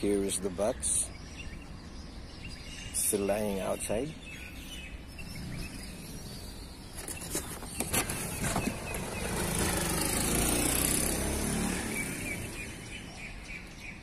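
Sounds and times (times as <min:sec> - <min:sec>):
road vehicle passing by: 0:08.0 - 0:14.0.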